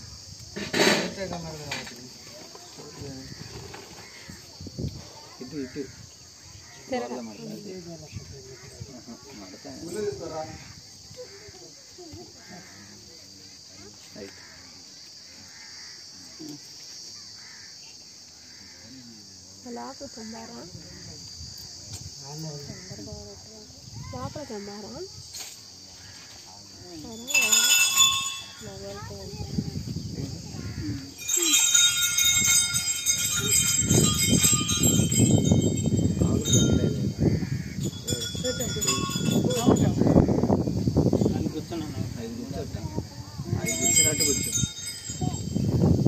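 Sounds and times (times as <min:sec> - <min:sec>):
insects droning: 0:00.0 - 0:46.0
people's voices: 0:00.6 - 0:46.0
small bells jingling: 0:26.9 - 0:29.8, 0:30.6 - 0:40.3, 0:42.4 - 0:46.0.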